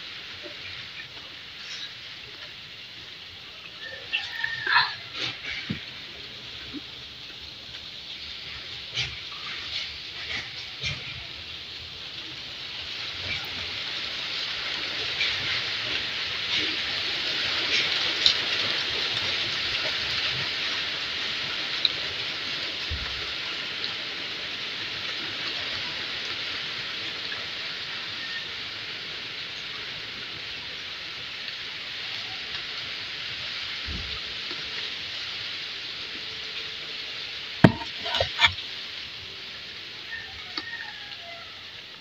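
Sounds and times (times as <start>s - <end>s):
steady hissing noise: 0.0s - 42.0s.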